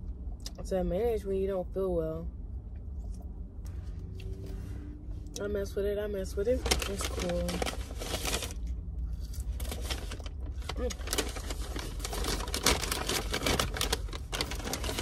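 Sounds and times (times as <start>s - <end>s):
low hum inside car: 0.0s - 15.0s
paper bag rustling and crinkling: 6.4s - 8.7s, 9.4s - 15.0s.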